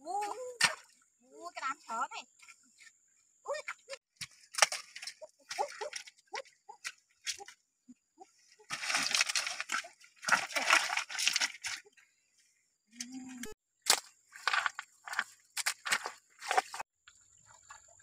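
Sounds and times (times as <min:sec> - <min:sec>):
stones knocking: 0:13.9 - 0:16.8
stones and gravel scraping: 0:14.3 - 0:16.8.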